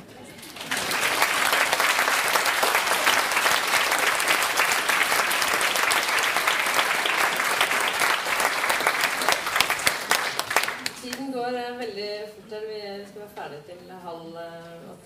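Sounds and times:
audience applauding: 0.5s - 11.2s.

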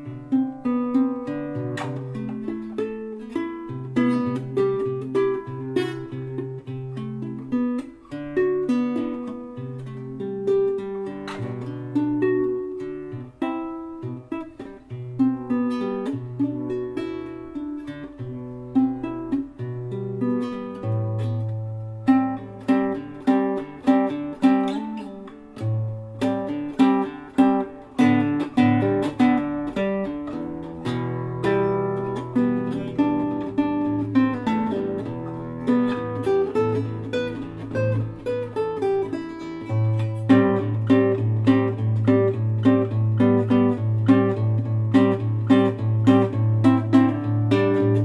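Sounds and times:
acoustic guitar playing: 0.0s - 48.0s.

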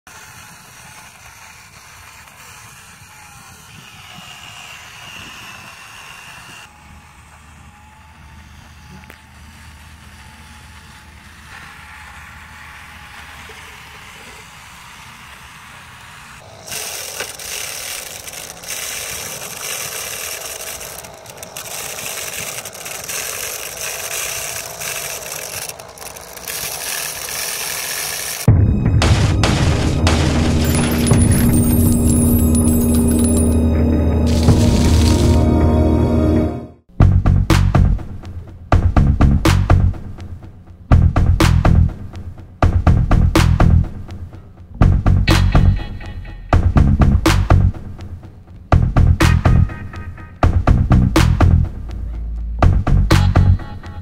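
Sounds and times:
small electric motor whine: 0.1s - 28.5s, 29.7s - 36.4s
wheels crunching through sand: 0.3s - 28.5s.

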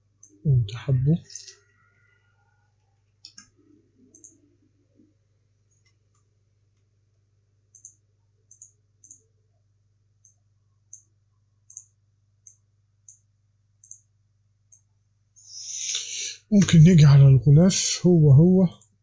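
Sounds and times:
faint low hum: 0.0s - 19.0s
computer mouse clicks: 3.1s - 4.4s, 7.7s - 9.3s, 10.2s - 14.1s.

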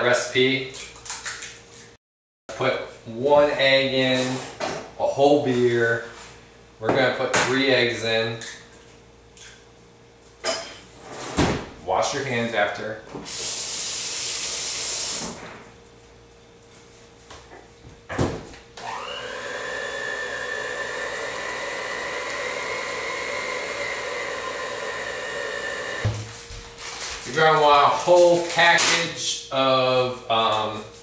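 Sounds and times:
electric hand mixer whining: 18.8s - 26.1s
knock: 26.0s - 26.3s.

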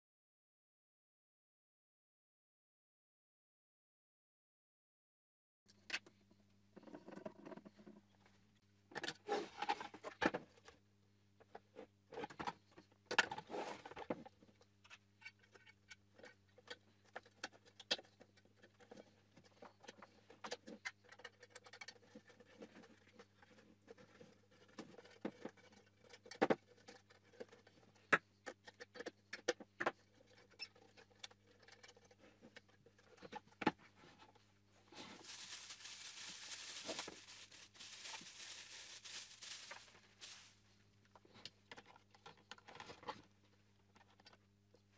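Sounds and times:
plastic wrapping crinkling: 34.9s - 40.7s.

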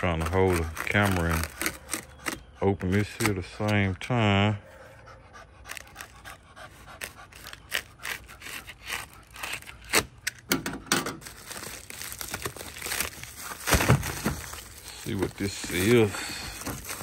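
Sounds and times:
box cutter slicing tape: 0.0s - 3.4s, 5.7s - 10.5s
bubble mailer crinkling: 0.0s - 3.8s, 11.2s - 17.0s.

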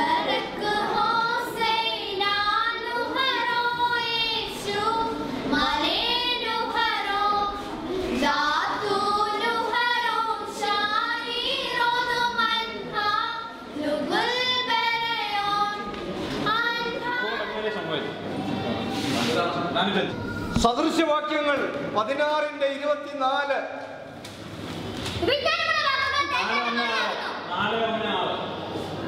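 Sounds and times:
girls singing together: 0.0s - 17.6s.

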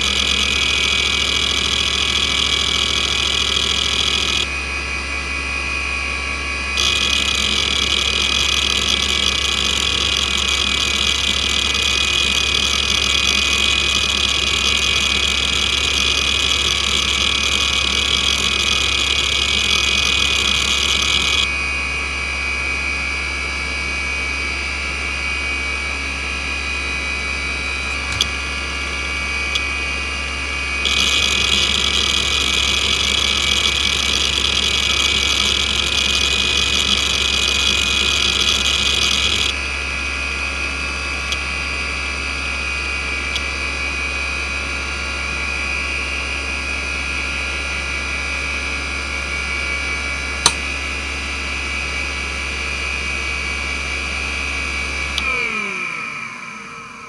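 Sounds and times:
hard drive seek clicks: 0.0s - 4.5s, 6.8s - 21.5s, 30.8s - 39.5s
hard drive spindle whine: 0.0s - 50.7s, 51.3s - 57.0s.

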